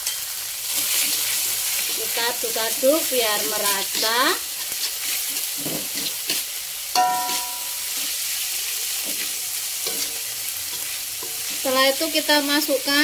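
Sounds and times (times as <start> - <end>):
metal spatula scraping wok: 0.0 - 12.4
cabbage sizzling in oil: 0.0 - 13.0
spatula clanking against wok: 7.0 - 7.8.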